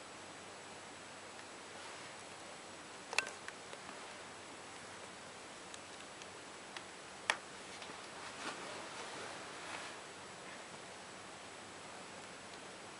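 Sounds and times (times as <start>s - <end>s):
steady hiss: 0.0s - 12.9s
soft rustling: 1.7s - 2.2s, 7.6s - 10.8s
sharp click: 3.1s - 3.6s.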